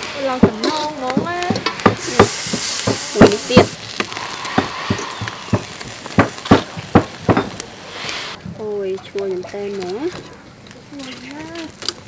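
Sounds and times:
loud hiss: 0:00.0 - 0:08.4
meat sizzling on a grill: 0:00.0 - 0:12.0.

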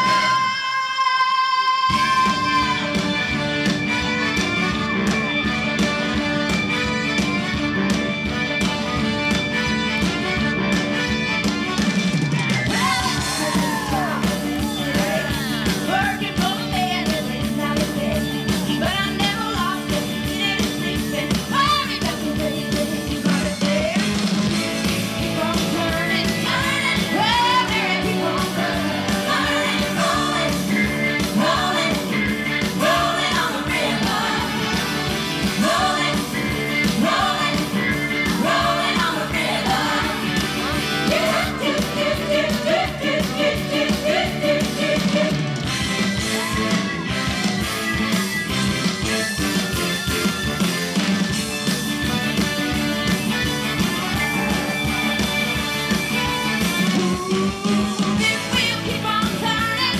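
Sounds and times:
upbeat rock and roll song: 0:00.0 - 0:59.9
person singing: 0:57.0 - 0:59.9.

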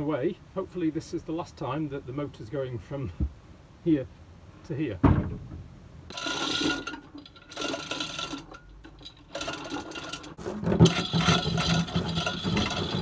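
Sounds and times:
chain hoist rattling and clicking: 0:06.1 - 0:13.0.

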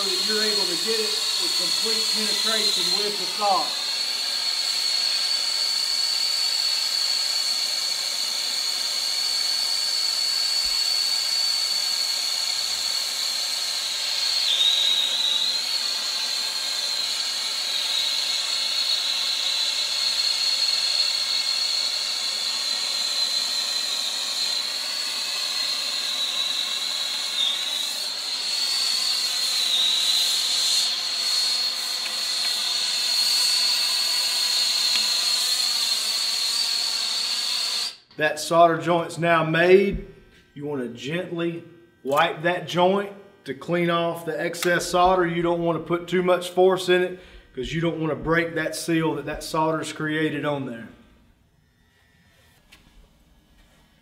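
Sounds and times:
torch flame hissing: 0:00.0 - 0:38.0
high steady whistle: 0:00.0 - 0:38.1.

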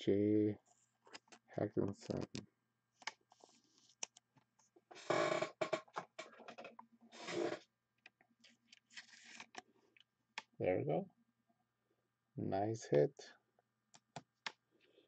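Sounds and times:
plastic sleeve rustling and clicking: 0:08.4 - 0:09.7.

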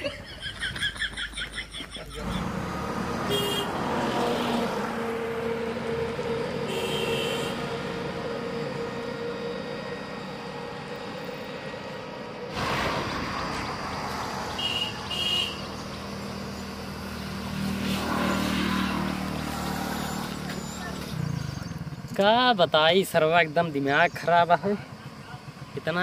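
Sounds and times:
traffic engine hum: 0:00.0 - 0:26.0
car horn beeping: 0:03.2 - 0:04.7, 0:06.0 - 0:07.8, 0:14.6 - 0:15.7.

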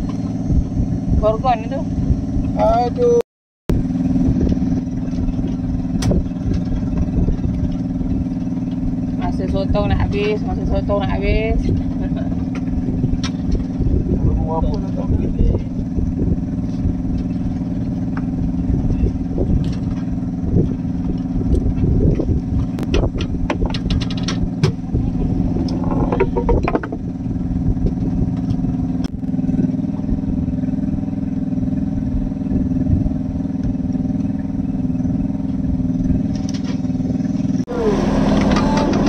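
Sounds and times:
boat engine running: 0:00.0 - 0:39.0
clicks and knocks: 0:25.6 - 0:27.0.

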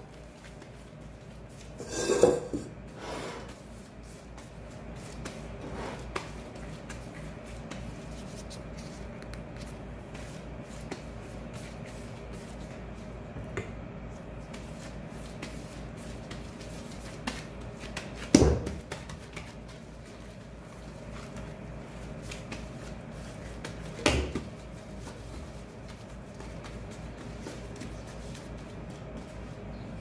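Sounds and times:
gloved hands rustling dough: 0:03.5 - 0:13.2.

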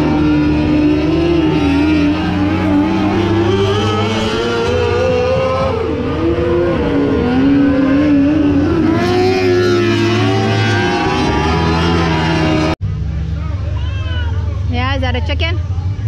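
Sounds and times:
race car engines: 0:00.0 - 0:16.0.

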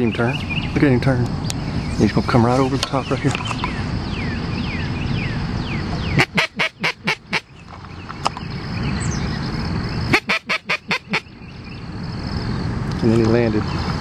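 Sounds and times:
duck call quacks: 0:06.2 - 0:07.5, 0:10.1 - 0:11.2.

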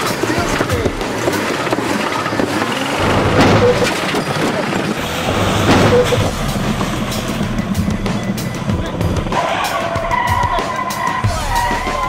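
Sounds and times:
car engine running: 0:00.6 - 0:09.4
sharp knocks: 0:03.0 - 0:04.0, 0:05.3 - 0:06.4.

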